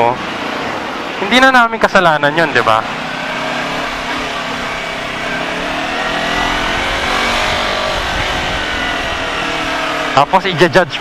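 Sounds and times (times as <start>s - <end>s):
wind and road noise: 0.0s - 11.0s
motorcycle engine running: 2.9s - 10.2s.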